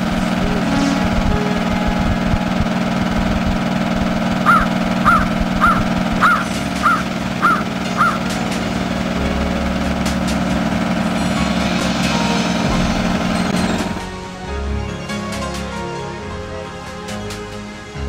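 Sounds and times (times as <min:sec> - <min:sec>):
boat engine drone: 0:00.0 - 0:18.0
gull calling: 0:04.4 - 0:08.4.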